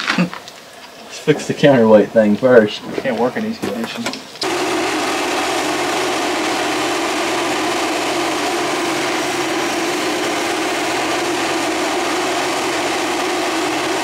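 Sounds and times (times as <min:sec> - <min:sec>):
excavator diesel engine idling: 0:04.4 - 0:14.0.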